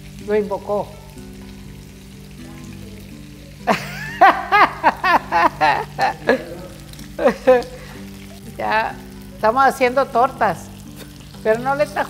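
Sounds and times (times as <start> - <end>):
cutlet sizzling in a skillet: 0.0 - 12.0
soft background music: 0.0 - 12.0
woman laughing: 3.6 - 8.0.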